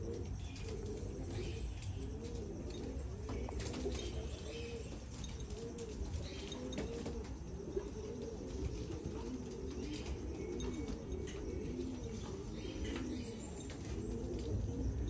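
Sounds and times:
pigeons cooing: 0.0s - 15.0s.

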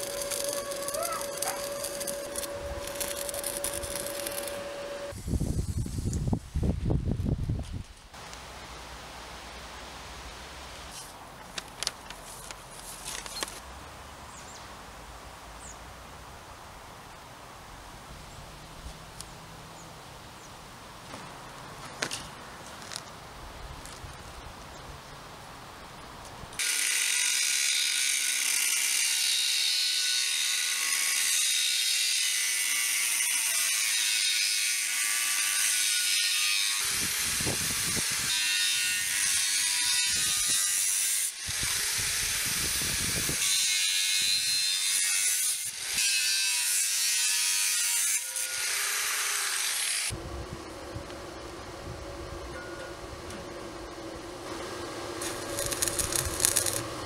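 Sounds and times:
angle grinder cutting steel: 0.0s - 5.2s, 26.6s - 50.2s, 55.2s - 57.0s.

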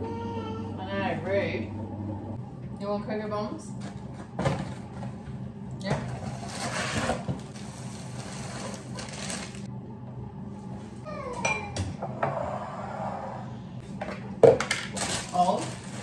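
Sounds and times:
plastic bag rustling: 6.2s - 9.7s, 14.9s - 16.0s.

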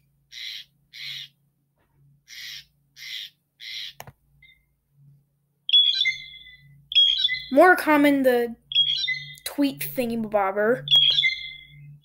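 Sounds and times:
blue jay rasping call: 0.3s - 1.4s, 2.2s - 4.0s, 8.7s - 9.4s.

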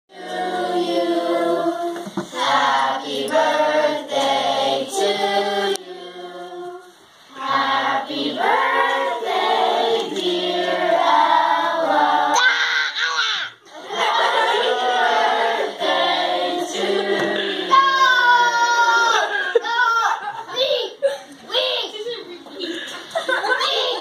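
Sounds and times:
children singing in chorus: 0.1s - 12.8s, 13.7s - 19.2s.

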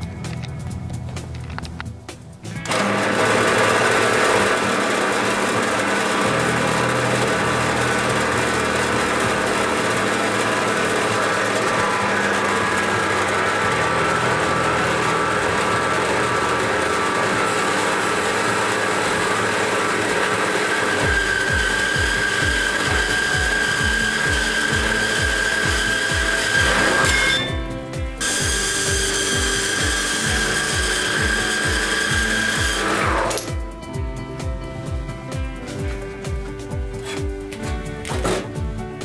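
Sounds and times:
band saw cutting steel: 2.5s - 33.6s.

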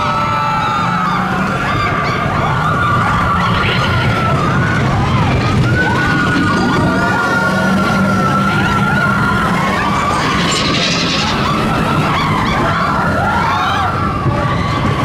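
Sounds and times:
riders screaming and whooping: 0.0s - 15.0s
roller coaster rumble: 0.3s - 15.0s
high wheel squeal: 2.5s - 13.8s.

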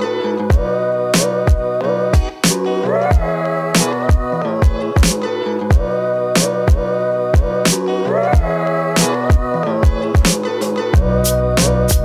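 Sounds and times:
drum beat: 2.2s - 3.3s, 4.1s - 5.9s, 9.3s - 10.4s.

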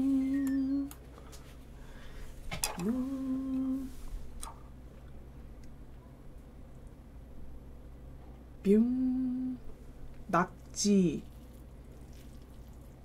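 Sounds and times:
woman humming: 0.0s - 1.0s, 2.6s - 4.0s, 8.6s - 9.7s.

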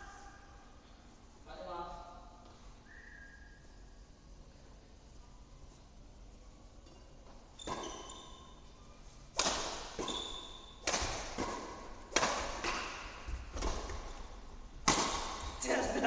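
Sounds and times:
rackets hitting shuttlecock: 9.3s - 15.6s.

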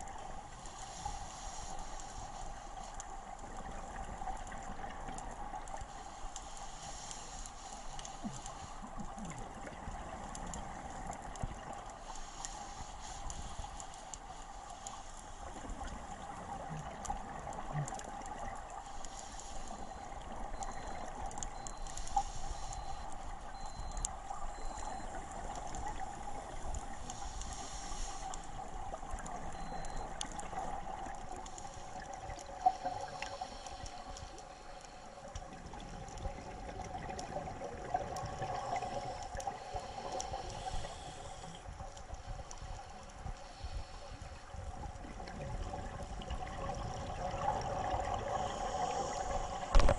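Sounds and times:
steady underwater hum: 0.0s - 49.9s
regulator bubbles gurgling: 35.3s - 42.4s, 44.4s - 49.9s.

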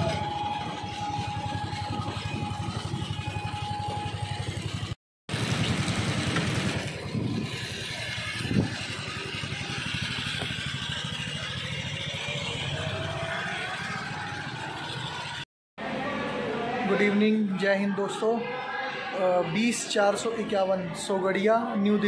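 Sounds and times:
engine running: 0.0s - 16.4s.

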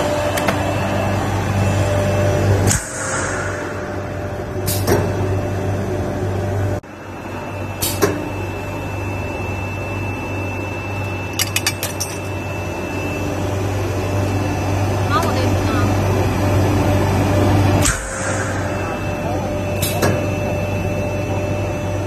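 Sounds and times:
machine humming: 0.0s - 22.0s
thin high whine: 16.9s - 22.0s.

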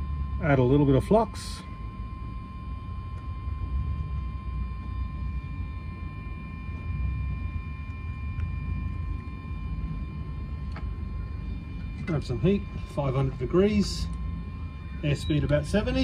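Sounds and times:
road traffic rumble: 2.8s - 16.0s.

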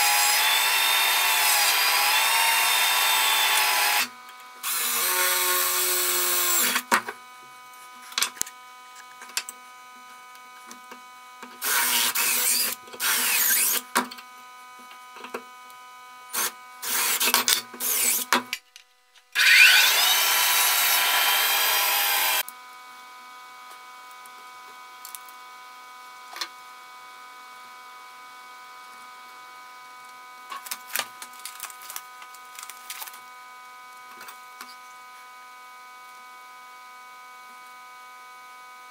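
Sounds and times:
band saw cutting wood: 0.0s - 6.9s, 11.6s - 13.9s, 16.4s - 18.4s, 19.4s - 22.4s.

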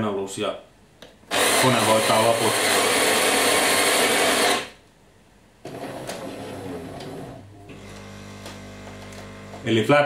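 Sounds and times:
coffee grinder: 1.3s - 4.8s, 5.8s - 9.7s
coffee machine humming: 1.3s - 4.8s, 5.7s - 9.8s
internal motor running: 5.7s - 9.7s.

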